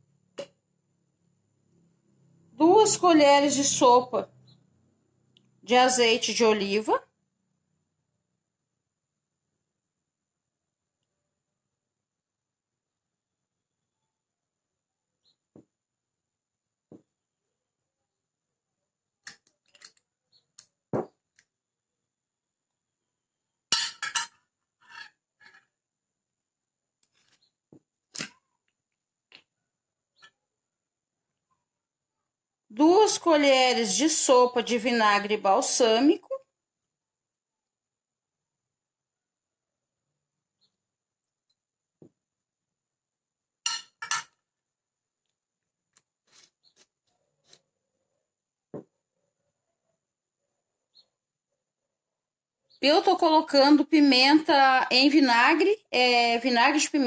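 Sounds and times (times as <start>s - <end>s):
glass bottles set down: 21.0s - 21.2s, 23.7s - 24.4s, 43.7s - 44.3s
metal spoon clinking on glass: 23.7s - 24.4s, 43.7s - 44.4s.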